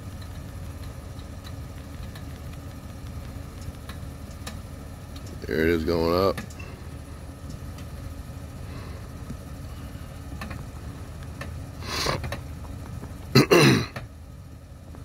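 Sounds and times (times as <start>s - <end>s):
car engine idling: 0.0s - 15.0s
person clearing throat: 13.3s - 14.0s.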